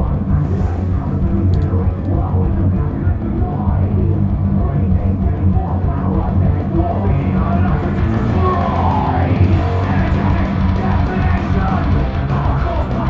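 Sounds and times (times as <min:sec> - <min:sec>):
heavy metal music: 0:00.0 - 0:13.0
shouted vocals: 0:06.7 - 0:13.0.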